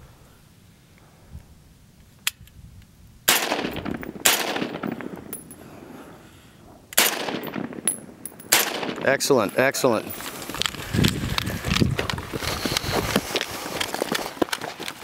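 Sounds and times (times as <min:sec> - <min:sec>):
gunshots with long echo: 0:03.3 - 0:06.2, 0:07.0 - 0:09.5.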